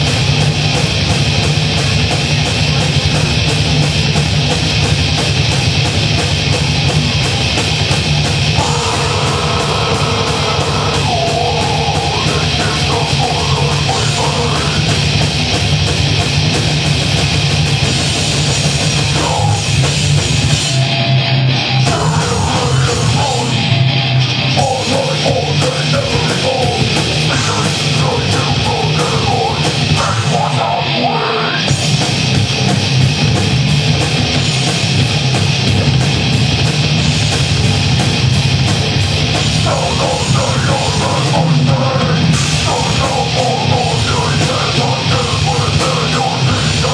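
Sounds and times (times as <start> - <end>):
drum kit: 0.0 - 46.9
electric guitars: 0.0 - 46.9.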